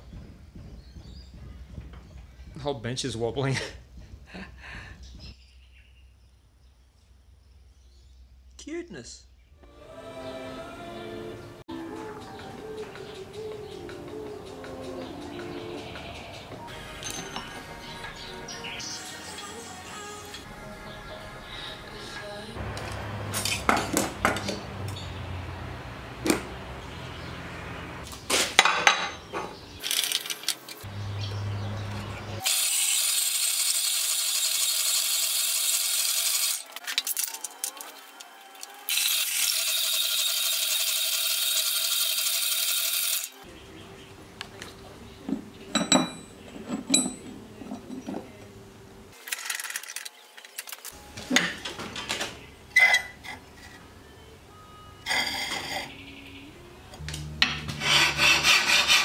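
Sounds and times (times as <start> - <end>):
steel clinking on a bench: 17.0 - 17.6, 45.7 - 48.2
power hacksaw cutting steel: 32.4 - 37.9, 38.5 - 43.4, 57.5 - 59.0
steel pieces knocking in a vice: 45.7 - 48.2.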